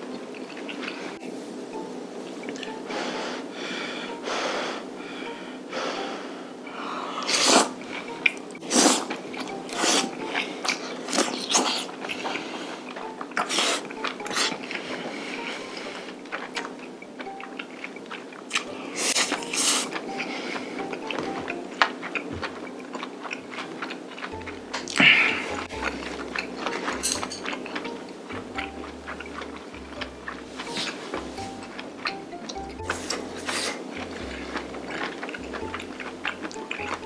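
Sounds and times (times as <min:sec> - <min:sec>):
close-miked chewing: 0:00.0 - 0:01.2, 0:07.2 - 0:37.0
sharp sucking slurps: 0:07.2 - 0:07.8.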